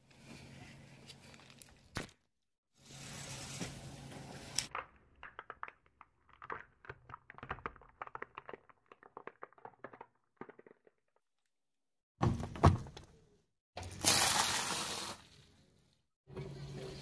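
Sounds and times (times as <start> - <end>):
plastic toys cracking: 4.7 - 11.2.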